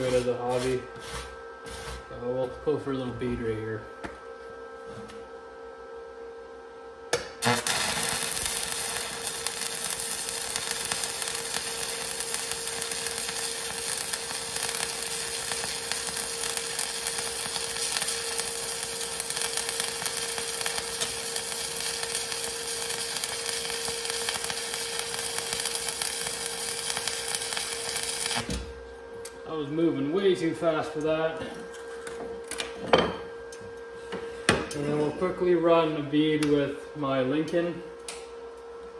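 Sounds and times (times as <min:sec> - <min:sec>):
arc welder sizzling crackle: 0:00.0 - 0:02.5, 0:07.1 - 0:32.8.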